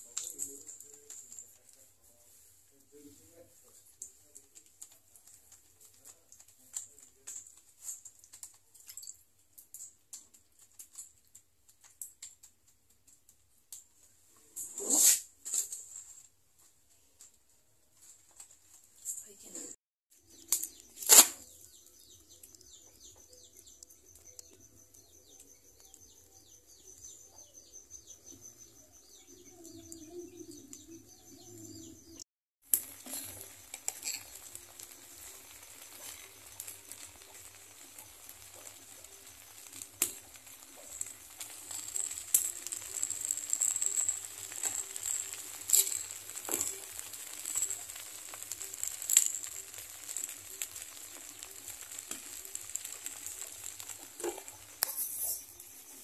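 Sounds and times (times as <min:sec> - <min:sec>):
food sizzling on a pan: 0:00.0 - 0:09.0, 0:32.6 - 0:56.0
sharp crackles and pops: 0:00.0 - 0:56.0.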